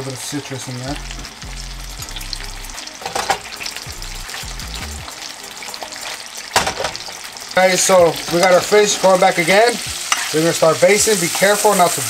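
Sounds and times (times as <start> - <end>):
vegetables sizzling in frying pan: 0.0 - 12.0
pan and utensil clicks: 3.0 - 3.7, 6.5 - 10.4.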